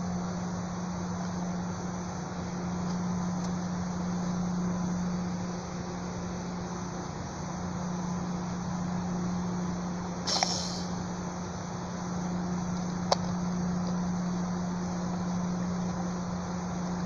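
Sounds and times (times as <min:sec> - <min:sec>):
steady low hum: 0:00.0 - 0:17.0
slingshot snap: 0:10.3 - 0:11.0.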